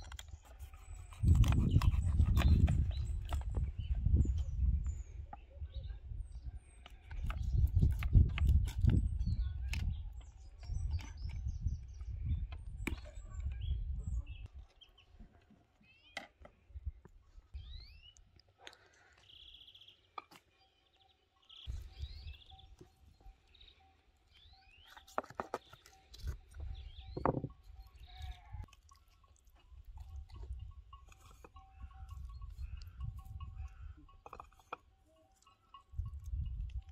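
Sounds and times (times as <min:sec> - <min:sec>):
wind rumbling on microphone: 0:00.0 - 0:14.6, 0:21.7 - 0:22.8, 0:26.2 - 0:28.7, 0:29.6 - 0:34.2, 0:35.8 - 0:36.9
small birds chirping: 0:00.0 - 0:36.9.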